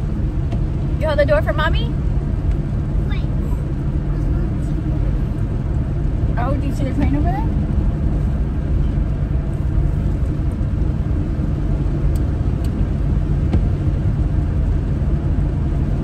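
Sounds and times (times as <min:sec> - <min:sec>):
car engine and road rumble: 0:00.0 - 0:16.0.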